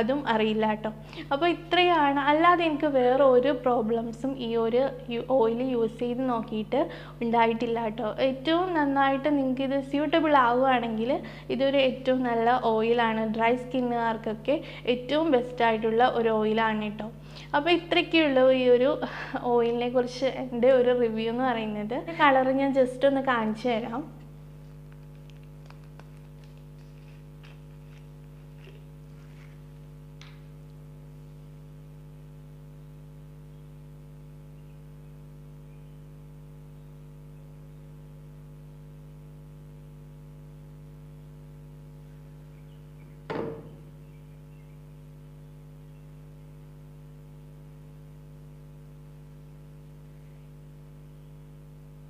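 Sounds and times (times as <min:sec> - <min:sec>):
electrical mains hum: 0:00.0 - 0:52.0
sharp knock: 0:43.3 - 0:43.8.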